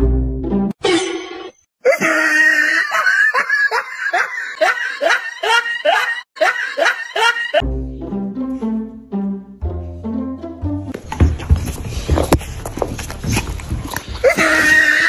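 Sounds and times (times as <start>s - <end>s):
person laughing: 1.8s - 7.6s, 14.2s - 15.0s.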